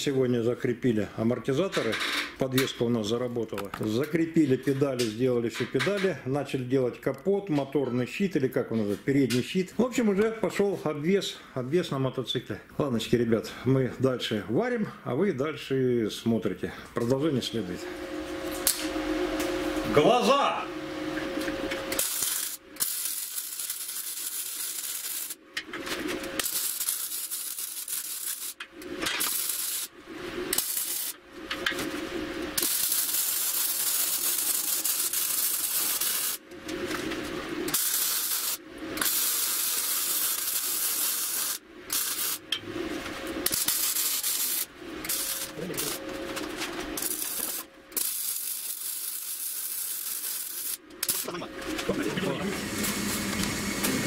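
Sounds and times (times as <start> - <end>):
steady welder hum: 15.9 - 54.0
welder crackling hiss: 21.9 - 25.4, 26.4 - 31.8, 32.5 - 36.4, 37.6 - 42.5, 43.4 - 46.0, 47.0 - 54.0.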